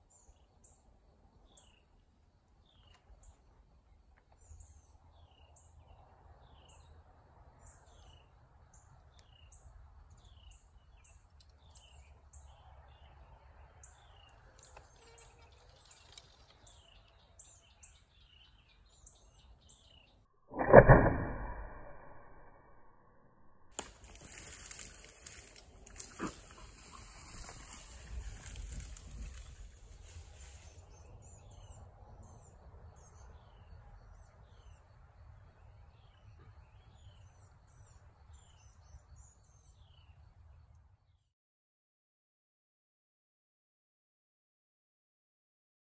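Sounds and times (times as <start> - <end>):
birds chirping: 7.6 - 20.2, 23.9 - 40.8
rustling of brush: 14.4 - 17.2, 23.8 - 31.2
bow shot thump: 20.5 - 22.2.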